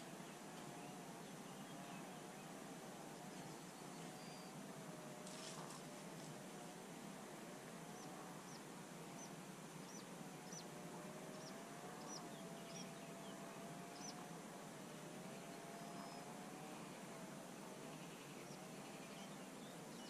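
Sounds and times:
faint wavering hum: 0.0 - 20.0
small bird chirping: 9.2 - 10.7, 11.3 - 13.3, 13.9 - 14.2.

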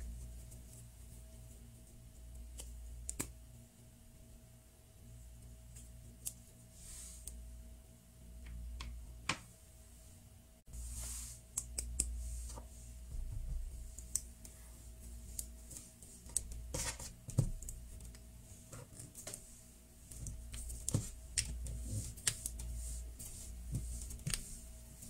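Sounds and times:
faint steady hum: 0.0 - 25.0
clicks and taps of plastic and dough: 15.4 - 18.2, 20.1 - 22.7.

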